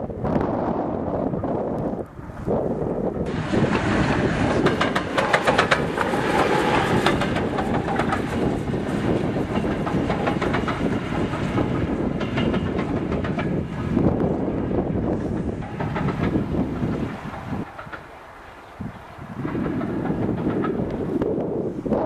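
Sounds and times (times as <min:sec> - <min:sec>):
steam locomotive exhaust beats: 0:00.1 - 0:22.0
train wheel clatter: 0:03.2 - 0:22.0.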